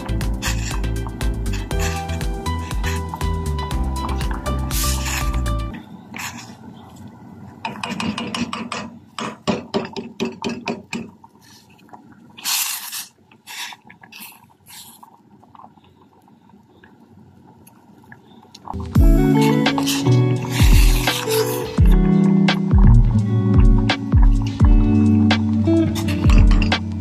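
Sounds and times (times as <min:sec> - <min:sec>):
background music: 0:00.0 - 0:05.7, 0:18.8 - 0:27.0
spatula scraping a steel pot: 0:00.4 - 0:03.2, 0:04.1 - 0:06.5, 0:19.4 - 0:21.8.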